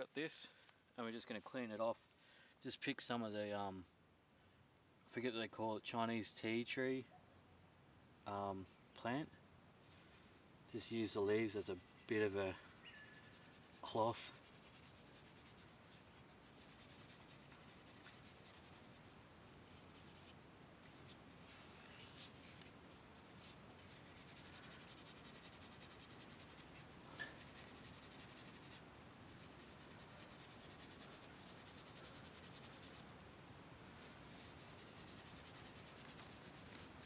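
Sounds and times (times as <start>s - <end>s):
leaves rubbing on wood: 9.8s - 33.2s, 34.0s - 37.0s.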